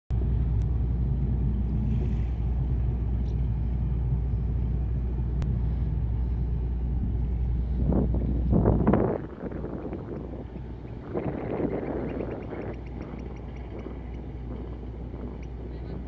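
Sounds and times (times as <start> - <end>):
ship engines rumbling: 0.1 - 16.0
wind gust on microphone: 0.2 - 16.0.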